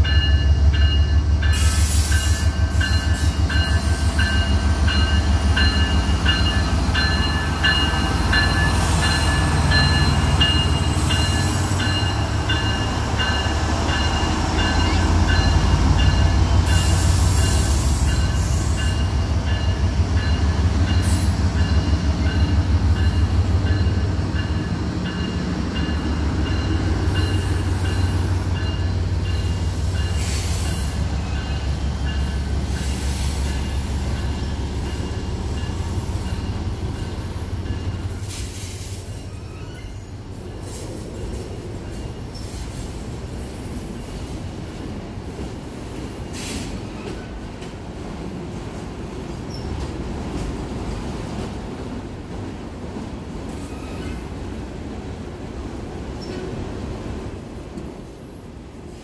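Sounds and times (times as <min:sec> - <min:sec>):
train wheels rumbling and clattering: 0:00.0 - 0:59.0
high ringing wheel squeal: 0:39.2 - 0:40.4.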